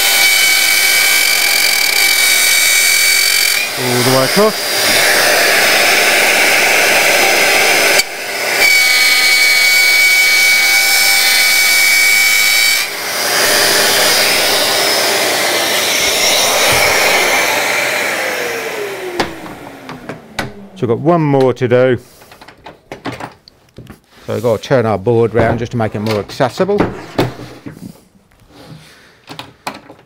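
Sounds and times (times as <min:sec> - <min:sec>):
router motor whining: 0:00.0 - 0:20.8
router cutting plywood: 0:00.0 - 0:21.0.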